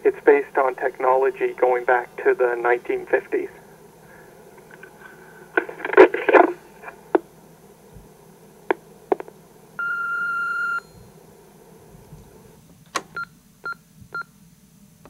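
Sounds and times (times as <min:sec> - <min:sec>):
recorded voice: 0:00.0 - 0:03.7, 0:05.6 - 0:07.2
answering machine beeps: 0:09.8 - 0:11.1, 0:13.1 - 0:14.3.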